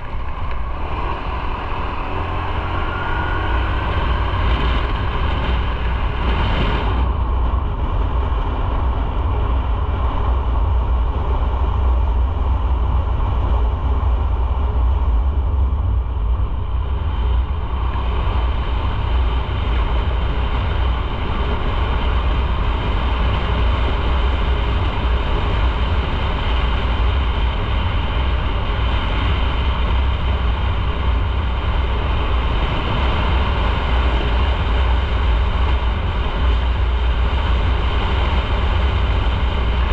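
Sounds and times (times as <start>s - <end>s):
motorcycle engine: 0.0s - 8.7s
low rumble: 0.0s - 39.9s.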